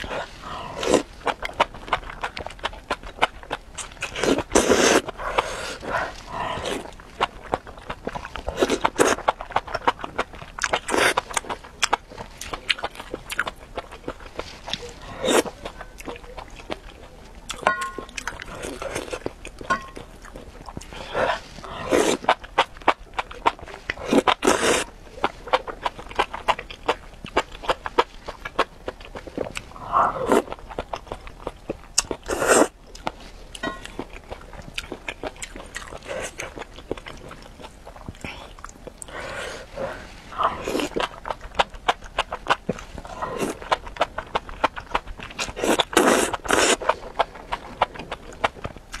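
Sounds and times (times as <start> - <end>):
chewing with lip smacks: 0.0 - 49.0
slurping: 17.5 - 22.4, 45.3 - 47.8
person slurping noodles: 21.0 - 22.3, 45.6 - 46.8.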